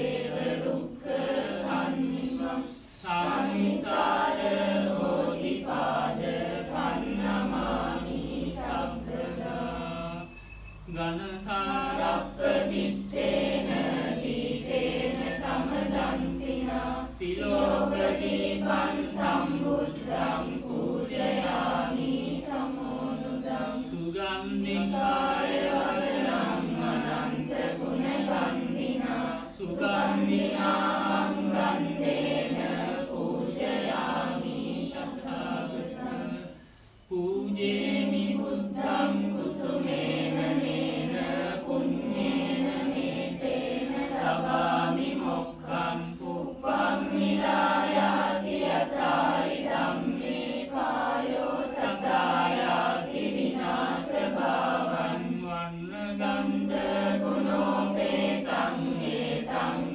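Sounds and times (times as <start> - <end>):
group chanting in unison: 0.0 - 59.9.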